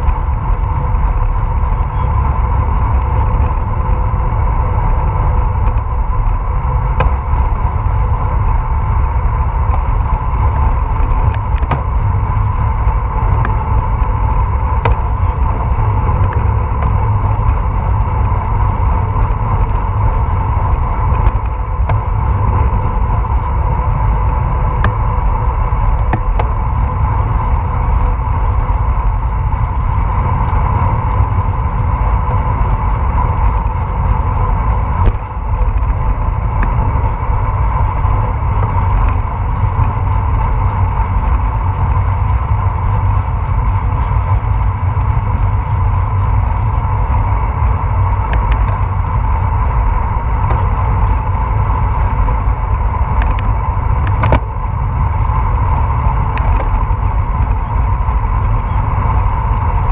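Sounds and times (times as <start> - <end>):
road rumble: 0.0 - 59.9
steady mid-pitched hum: 0.0 - 59.9
wind on microphone: 0.0 - 59.9.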